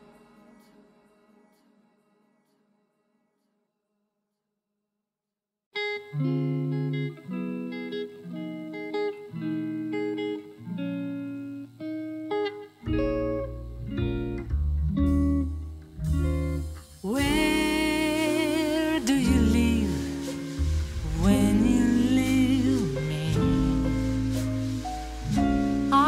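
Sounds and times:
guitar picking single notes: 0:05.8 - 0:26.0
bass line: 0:12.9 - 0:26.0
person singing: 0:16.9 - 0:26.0.

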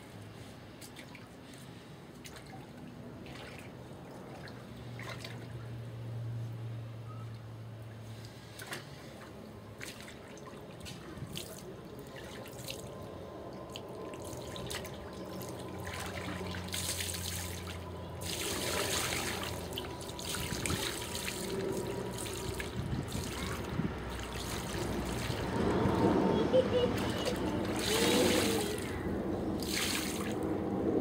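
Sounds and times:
water splashing and trickling: 0:00.0 - 0:06.4, 0:07.3 - 0:30.8.

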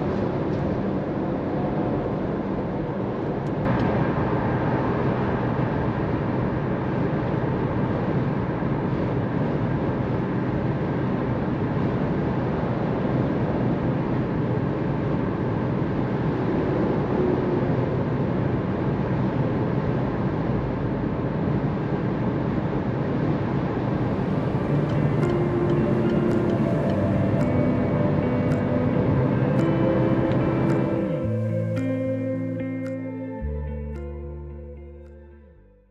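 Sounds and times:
road and tyre rumble: 0:00.0 - 0:35.4
car engine hum: 0:23.9 - 0:35.4.

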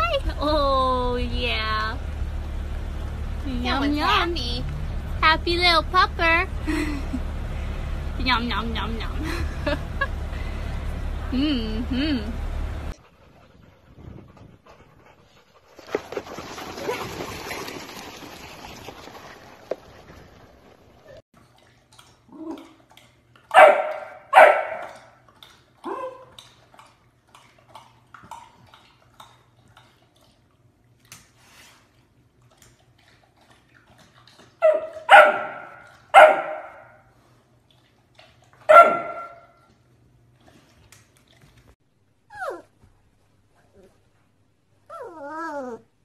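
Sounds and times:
puppy barking: 0:23.5 - 0:25.1, 0:34.6 - 0:37.0, 0:38.7 - 0:39.6
puppy whining: 0:42.3 - 0:42.9, 0:44.8 - 0:46.0.

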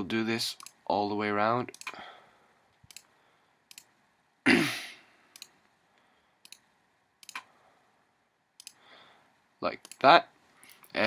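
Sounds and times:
computer mouse clicks: 0:00.6 - 0:00.8, 0:01.7 - 0:02.0, 0:02.7 - 0:03.1, 0:03.7 - 0:03.9, 0:05.3 - 0:05.7, 0:06.4 - 0:07.5, 0:08.6 - 0:08.8, 0:09.8 - 0:11.0.

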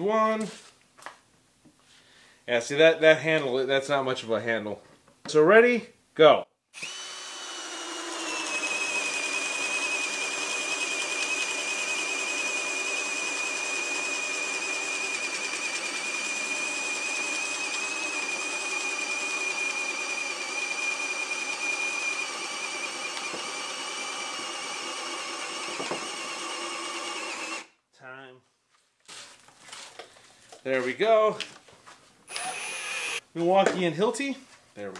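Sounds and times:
cordless drill boring into wood: 0:06.8 - 0:27.7, 0:32.3 - 0:33.2.

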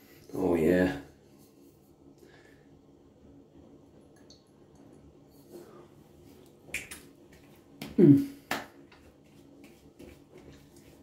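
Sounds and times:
palms slapping face: 0:06.7 - 0:10.2.

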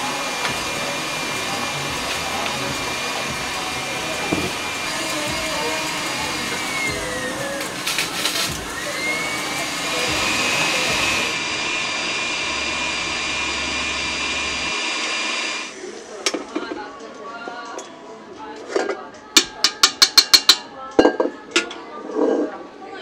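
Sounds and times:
stand mixer motor whine: 0:00.0 - 0:15.8.

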